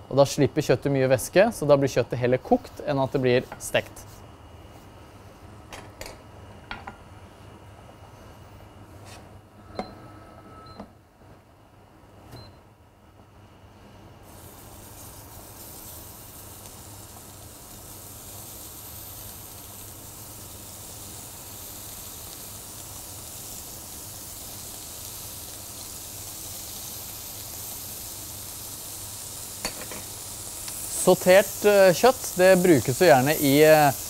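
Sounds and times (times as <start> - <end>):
meat sizzling in a frying pan: 14.2 - 34.0.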